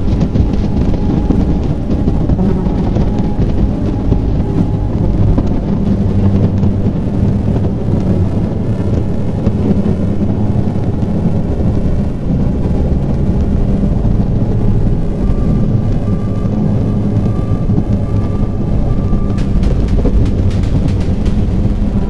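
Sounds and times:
high steady synth tone: 0:00.0 - 0:22.0
low rumbling synth drone: 0:00.0 - 0:22.0.

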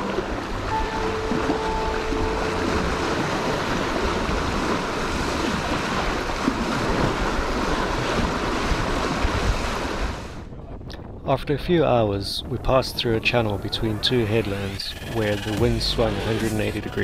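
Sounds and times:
water rushing along hull: 0:00.0 - 0:10.9, 0:11.6 - 0:17.0
wind on microphone: 0:00.0 - 0:17.0.

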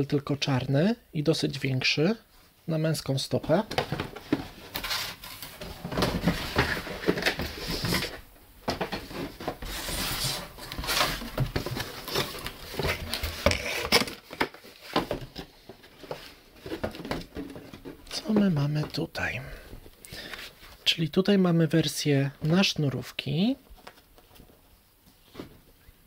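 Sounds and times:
cardboard rustling: 0:03.5 - 0:19.1
cardboard boxes scraping: 0:03.9 - 0:08.2, 0:08.8 - 0:18.4.

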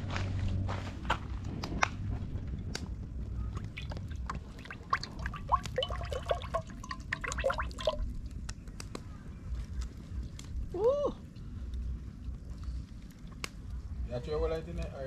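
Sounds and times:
jug gurgling glugs: 0:03.6 - 0:08.0
oil pouring into metal pot: 0:03.8 - 0:08.0.

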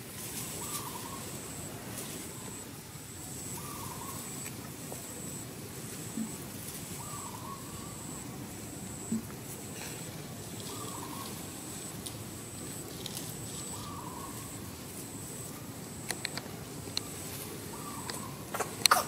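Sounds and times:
wavering bird call: 0:03.5 - 0:04.4
sharp clicks: 0:16.0 - 0:17.1.

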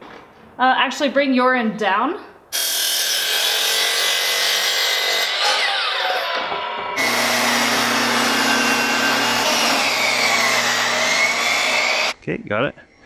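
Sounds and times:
table saw ripping board: 0:02.6 - 0:12.1
miter saw winding down: 0:05.1 - 0:12.2.

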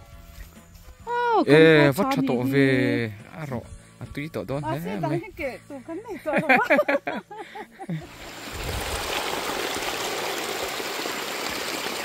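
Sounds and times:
person speaking: 0:01.8 - 0:03.1.

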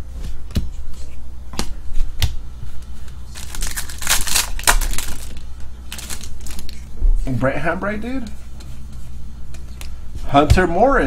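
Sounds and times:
foil wrapper tearing and crinkling: 0:03.3 - 0:06.8.

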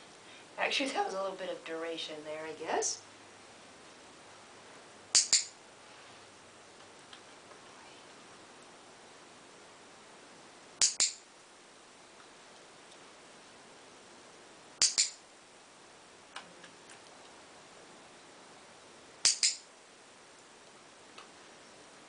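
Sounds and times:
clicker double click: 0:05.2 - 0:05.5, 0:14.8 - 0:15.2, 0:19.2 - 0:19.6.

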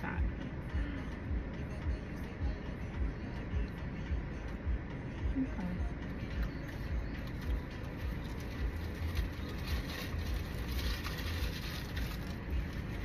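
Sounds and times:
car cabin rumble and hiss: 0:00.0 - 0:13.0
light rustling crackles: 0:07.1 - 0:13.0.

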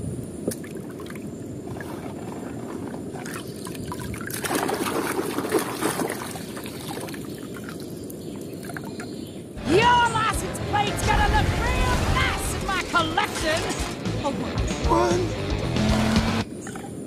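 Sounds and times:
muddy water splashing in a tub: 0:00.5 - 0:09.1.

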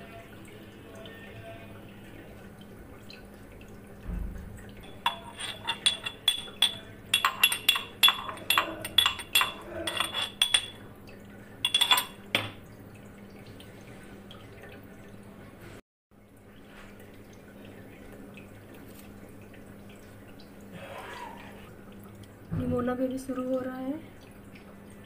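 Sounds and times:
utensil clinking on steel saucepan: 0:04.8 - 0:10.8, 0:11.6 - 0:12.6.

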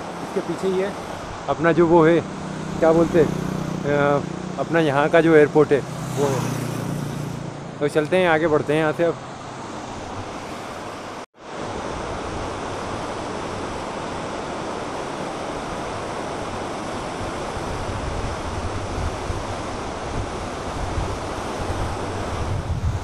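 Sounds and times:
river rushing over rapids: 0:00.0 - 0:23.0
wind buffeting microphone: 0:15.6 - 0:23.0.

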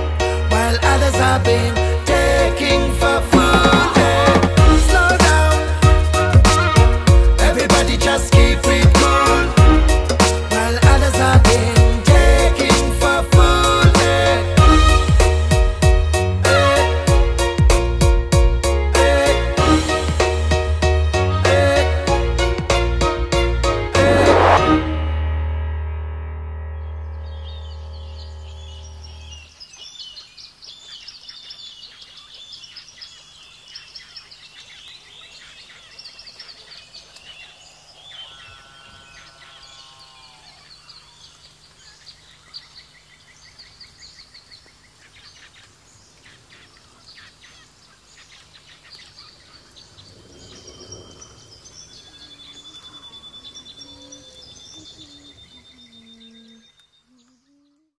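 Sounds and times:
birds chirping and calling: 0:27.2 - 0:57.9.

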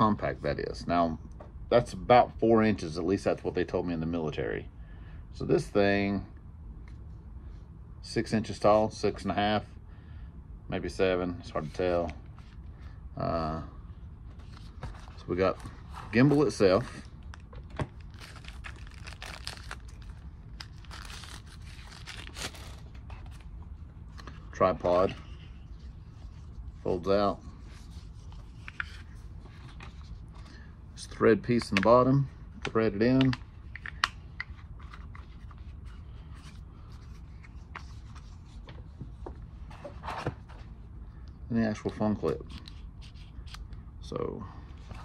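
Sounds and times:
low room hum: 0:00.0 - 0:45.0
plastic packaging crinkling: 0:17.2 - 0:23.4.

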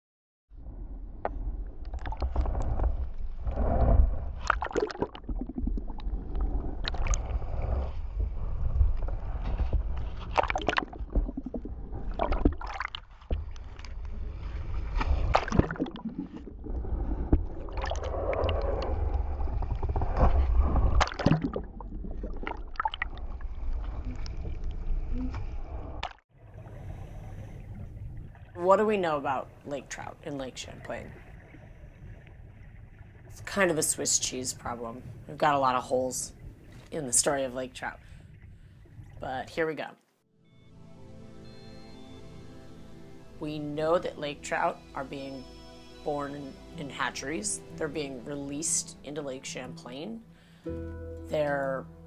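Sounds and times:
water sloshing and splashing: 0:01.1 - 0:39.4.

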